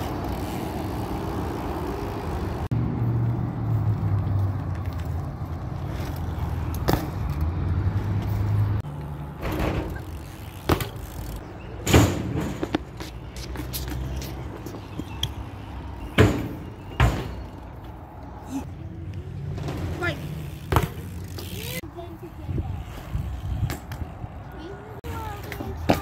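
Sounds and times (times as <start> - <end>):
street traffic: 0.0 - 26.0
tyres rumbling on asphalt: 0.0 - 26.0
bike knocking on pavement: 16.1 - 17.5.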